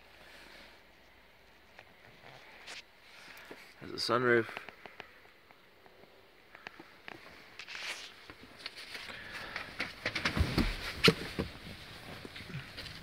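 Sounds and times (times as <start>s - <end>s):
clicks and rustling in car cabin: 9.6s - 12.5s.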